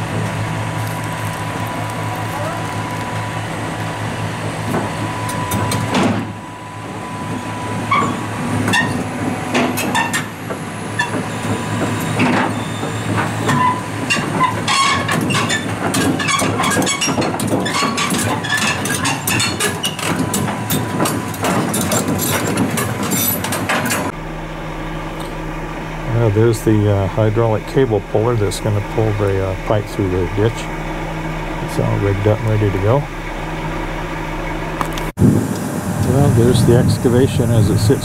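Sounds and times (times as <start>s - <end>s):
metallic clanks of steel tracks: 0.0s - 24.2s
excavator diesel engine running: 0.0s - 38.0s.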